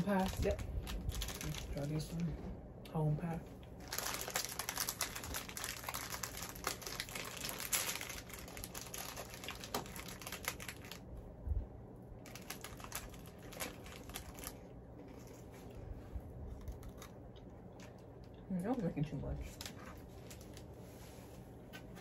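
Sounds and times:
plastic wrapper crinkling: 0:00.0 - 0:02.3, 0:03.7 - 0:11.1, 0:12.2 - 0:15.8, 0:19.4 - 0:20.7.

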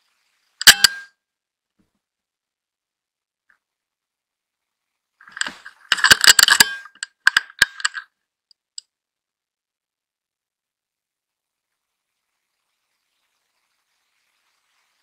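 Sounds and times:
rifle being cocked and reloaded: 0:00.6 - 0:01.0, 0:05.3 - 0:08.1.

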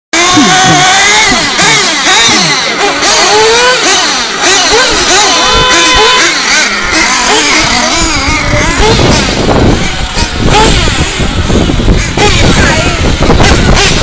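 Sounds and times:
small glow engines revving: 0:00.2 - 0:14.0.

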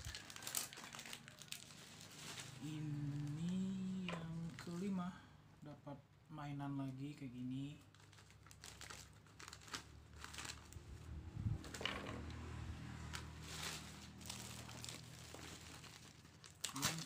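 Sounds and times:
plastic snack packet crinkling: 0:00.0 - 0:04.9, 0:07.7 - 0:12.4, 0:13.0 - 0:17.0.

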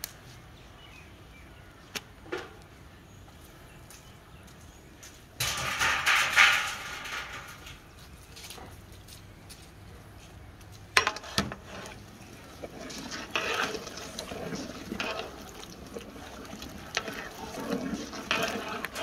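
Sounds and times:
water sloshing in pot: 0:05.4 - 0:07.8, 0:11.0 - 0:19.0.

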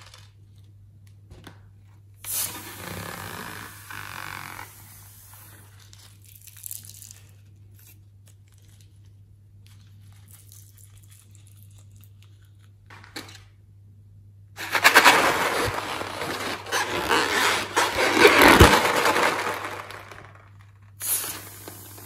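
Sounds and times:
soft rustling of balloon: 0:14.6 - 0:20.2.

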